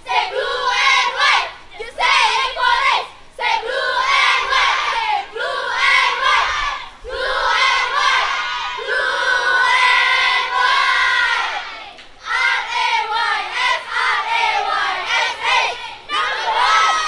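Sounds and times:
cheerleaders shouting in unison: 0.0s - 17.0s.

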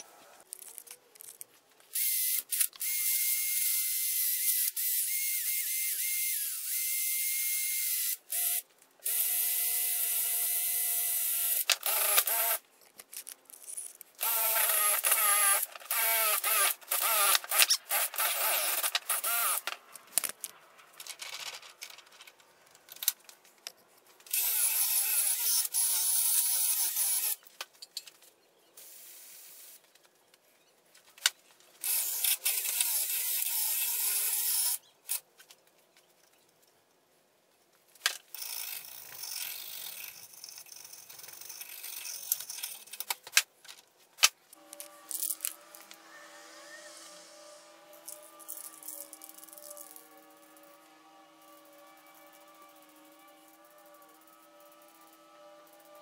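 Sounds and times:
drill with wire brush on metal: 2.0s - 12.6s, 14.2s - 19.8s, 24.3s - 27.4s, 31.8s - 34.8s.

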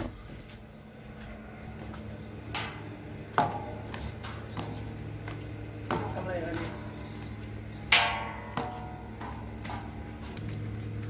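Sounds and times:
low machine hum: 0.0s - 11.0s
sharp knocks: 7.9s - 9.9s.

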